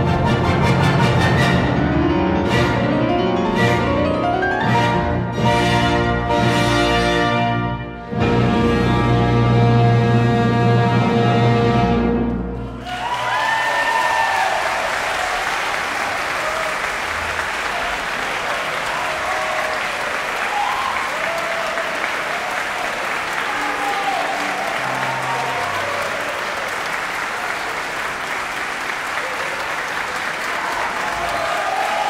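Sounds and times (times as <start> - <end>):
audience applauding: 12.7 - 32.0
shouted cheers: 12.8 - 27.8, 29.1 - 32.0.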